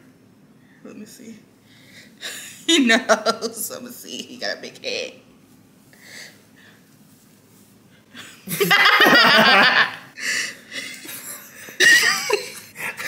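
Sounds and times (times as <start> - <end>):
people laughing: 8.5 - 10.1.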